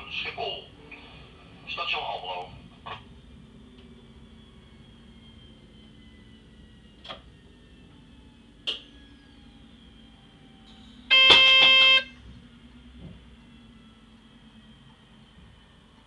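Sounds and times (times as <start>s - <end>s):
train cab running noise: 0.0s - 16.0s
steady signal tone: 11.1s - 12.3s.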